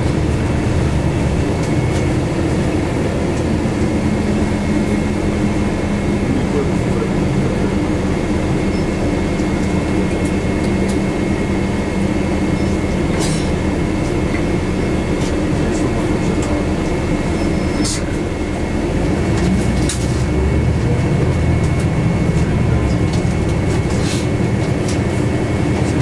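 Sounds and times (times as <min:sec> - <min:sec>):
bus engine and road rumble: 0:00.0 - 0:26.0.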